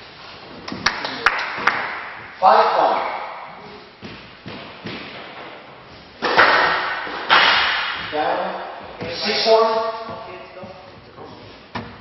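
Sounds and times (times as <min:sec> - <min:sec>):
squash ball hits echoing: 0:01.4 - 0:05.6, 0:06.2 - 0:09.2.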